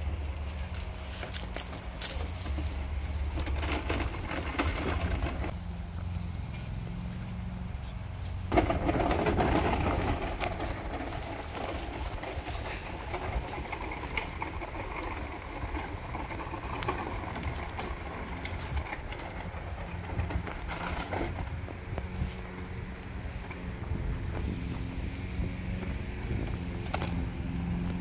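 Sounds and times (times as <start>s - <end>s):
plastic grass catcher rattling: 0.0s - 5.5s, 8.5s - 22.4s
mower wheels rolling: 0.0s - 28.0s.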